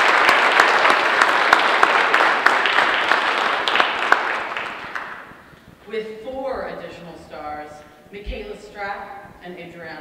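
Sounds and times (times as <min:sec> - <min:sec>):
audience applause: 0:00.0 - 0:05.4.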